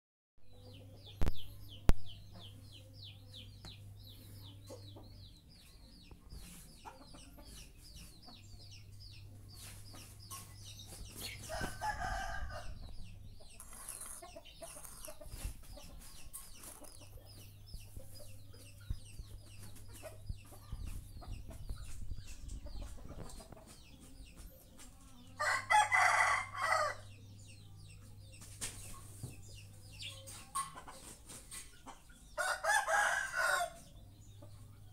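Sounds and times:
rooster crowing: 0:11.5 - 0:12.8, 0:25.4 - 0:27.0, 0:32.4 - 0:33.8.

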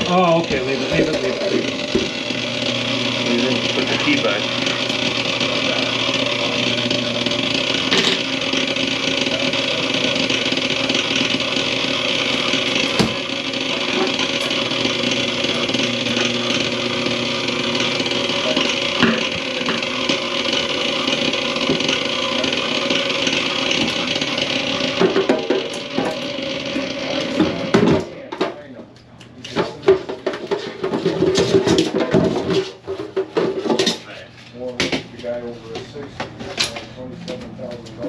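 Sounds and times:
drain-cleaning machine running: 0:00.0 - 0:28.5, 0:29.6 - 0:34.0.

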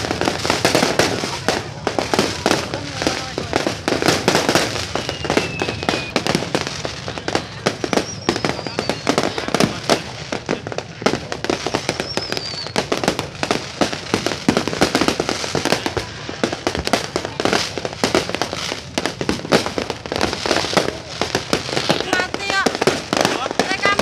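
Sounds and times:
fireworks bangs and crackles: 0:00.0 - 0:24.0
falling firework whistle: 0:04.0 - 0:10.1, 0:11.2 - 0:16.1.

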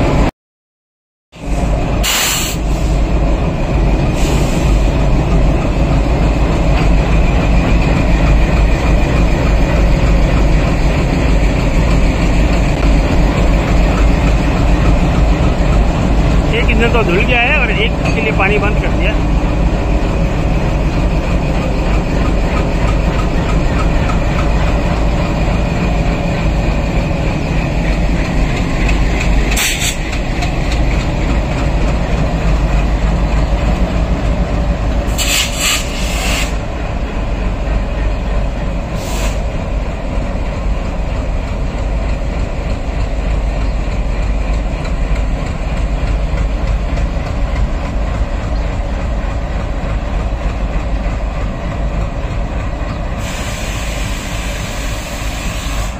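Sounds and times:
locomotive engines rumbling: 0:00.0 - 0:00.3, 0:01.4 - 0:55.9
wheels clicking on rails: 0:20.9 - 0:26.2, 0:26.9 - 0:36.5.

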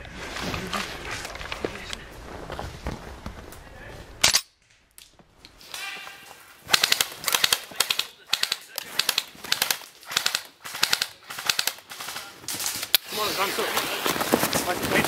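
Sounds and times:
footsteps crunching through snow: 0:00.0 - 0:04.2, 0:12.4 - 0:15.0.

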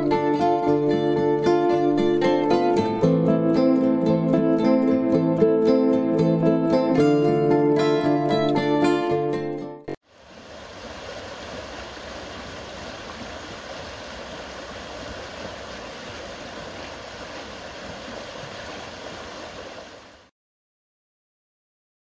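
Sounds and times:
stream rushing over stones: 0:10.1 - 0:20.3.

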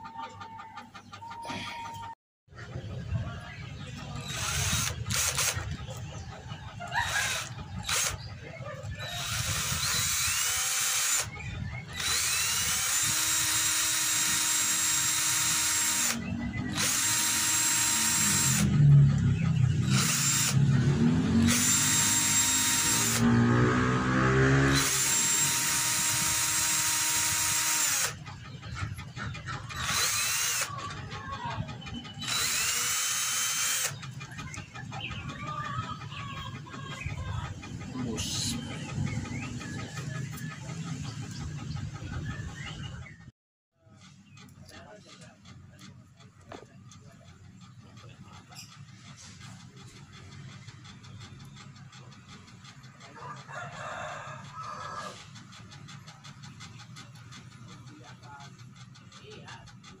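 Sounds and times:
cordless drill whining: 0:04.2 - 0:05.6, 0:07.0 - 0:08.2, 0:08.9 - 0:18.7, 0:19.8 - 0:20.6, 0:21.4 - 0:23.6, 0:24.5 - 0:28.2, 0:29.8 - 0:30.7, 0:32.2 - 0:34.0.

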